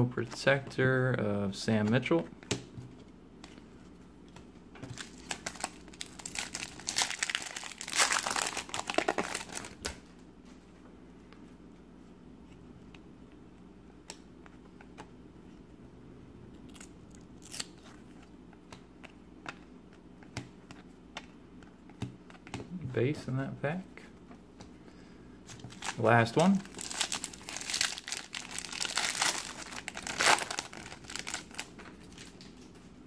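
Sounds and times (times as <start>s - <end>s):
foil wrapper crinkling and tearing: 4.9s - 9.8s, 25.7s - 32.4s.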